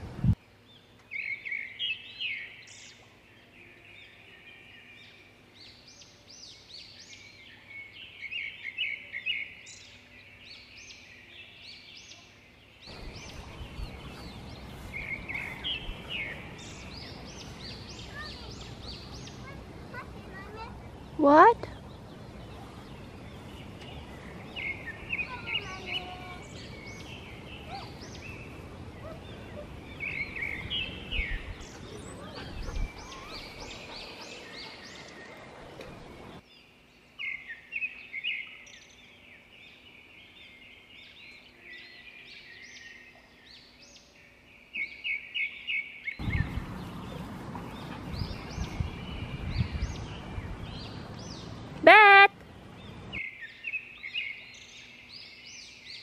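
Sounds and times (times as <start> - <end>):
steady background noise: 12.0 - 37.8.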